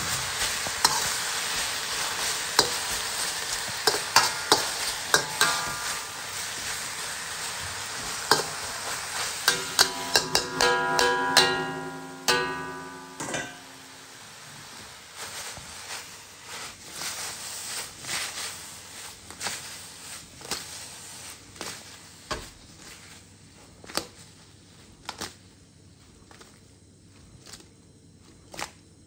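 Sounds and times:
metal spatula scraping wok: 0:00.0 - 0:14.2
faint sizzling: 0:00.0 - 0:27.2
wok ringing: 0:00.6 - 0:14.8.

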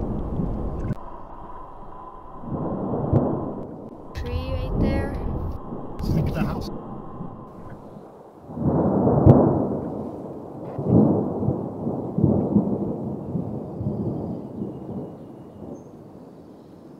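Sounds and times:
distant fireworks booming: 0:00.0 - 0:16.5
sharp firework crack: 0:08.5 - 0:10.0.

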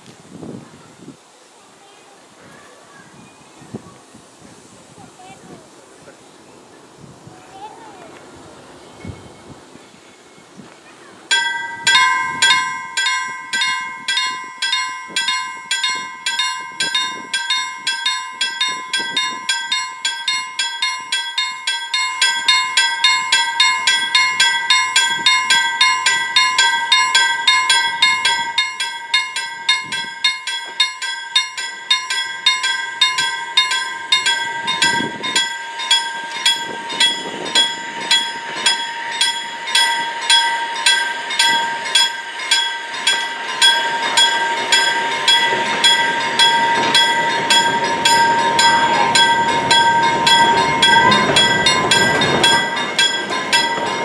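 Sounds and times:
level crossing warning bell: 0:11.3 - 0:54.0.

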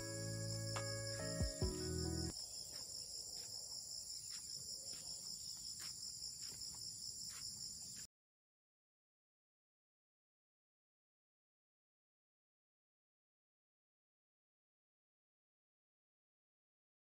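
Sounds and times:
background music: 0:00.0 - 0:02.3
insects chirping shrilly: 0:00.0 - 0:02.5.

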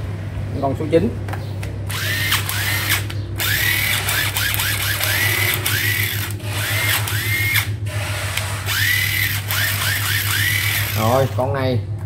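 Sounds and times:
impact driver motor spinning: 0:01.9 - 0:11.5.

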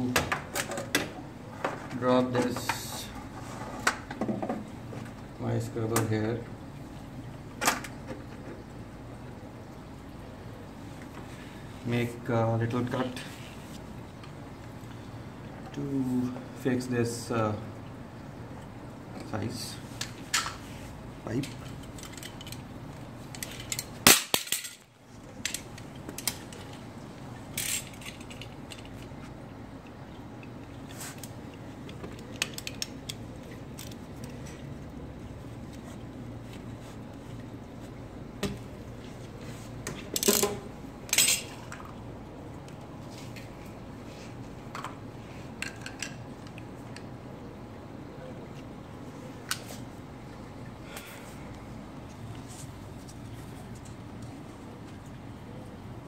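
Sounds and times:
plastic tubing scraping rustle: 0:01.5 - 0:04.0.

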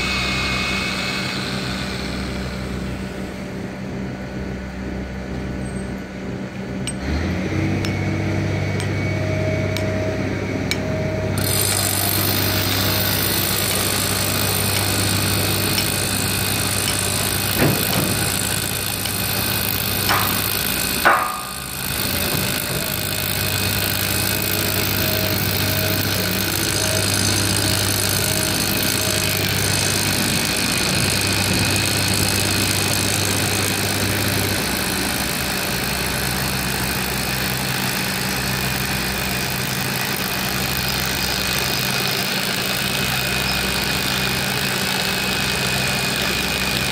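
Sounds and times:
construction machinery engine running: 0:00.0 - 0:46.9
short metallic knocks: 0:16.7 - 0:19.2, 0:20.0 - 0:22.9.

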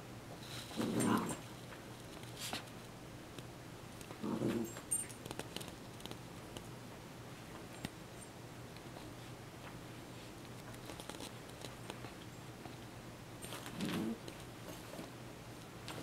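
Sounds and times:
puppy growling: 0:00.7 - 0:01.4, 0:04.2 - 0:04.8, 0:13.6 - 0:14.2
clicks and scratches of chewing: 0:10.4 - 0:12.2.

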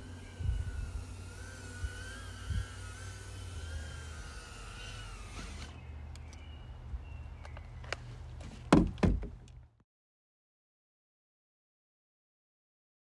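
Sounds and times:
drone motors whining: 0:00.0 - 0:06.7
loud thumps: 0:08.6 - 0:09.4.

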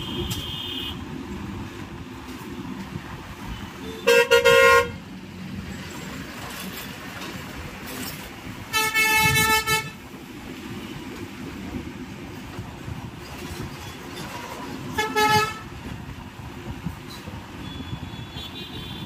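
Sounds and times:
vehicle horn honking: 0:00.0 - 0:01.0, 0:03.6 - 0:05.0, 0:08.7 - 0:10.0, 0:15.0 - 0:15.7, 0:17.6 - 0:19.0
low hum of traffic: 0:00.0 - 0:19.0.

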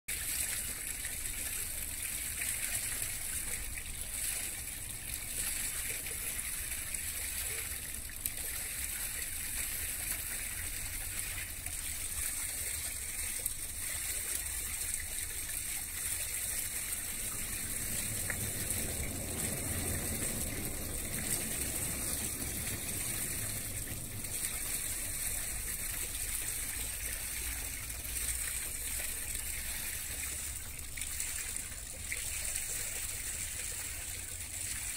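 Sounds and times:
water lapping: 0:00.1 - 0:34.9
low rumble: 0:16.7 - 0:25.8.

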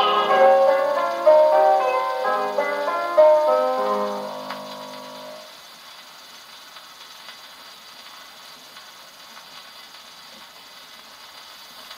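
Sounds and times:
singing and piano notes: 0:00.0 - 0:05.5
record surface hiss: 0:00.0 - 0:11.9.

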